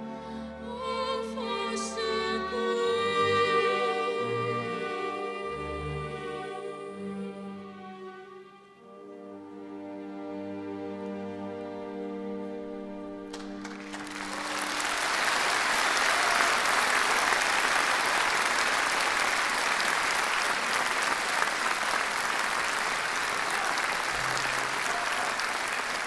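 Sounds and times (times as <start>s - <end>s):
large audience applauding: 13.3s - 26.0s.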